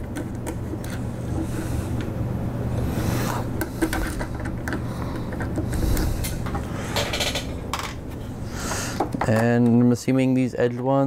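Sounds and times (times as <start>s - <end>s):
screwdriver scraping: 0.0s - 2.0s
steady low hum: 0.0s - 11.0s.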